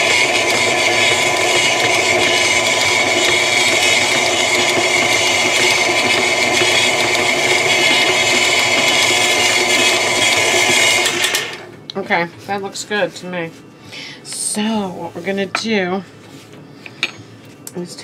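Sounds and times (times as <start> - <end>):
stand mixer motor whine: 0.0 - 11.7.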